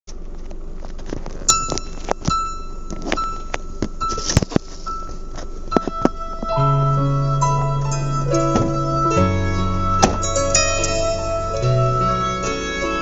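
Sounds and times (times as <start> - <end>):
objects clicking and clinking in car: 0.1 - 6.6
high steady electronic tone: 1.5 - 13.0.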